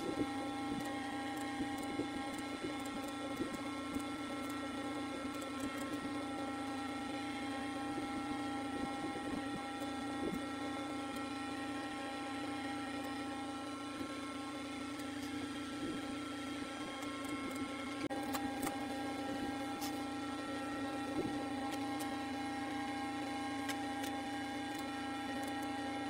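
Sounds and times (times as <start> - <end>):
steady machine hum: 0.0 - 26.0
computer mouse clicks: 23.6 - 25.7.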